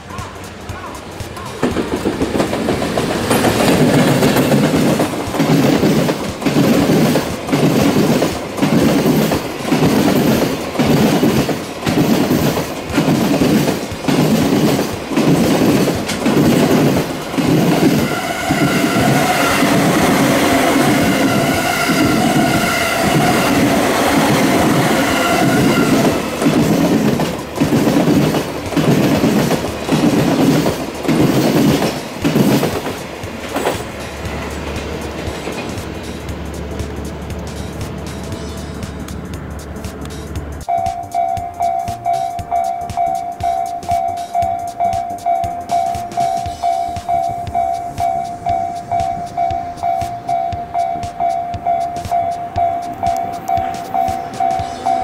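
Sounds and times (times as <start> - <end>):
train wheels clattering over rail joints: 0.0 - 55.0
steady high whine: 33.0 - 55.0.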